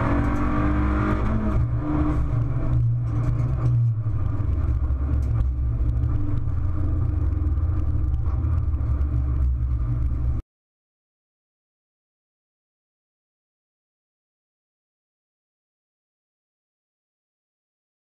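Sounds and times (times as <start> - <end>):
race car engine rumble: 0.0 - 10.4
road noise: 0.0 - 10.4
knocks and rattles: 2.3 - 10.4.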